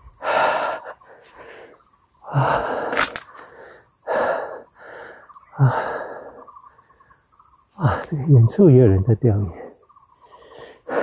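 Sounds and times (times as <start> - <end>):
person breathing hard: 0.0 - 6.5, 10.2 - 11.0
high insect chirr: 0.0 - 11.0.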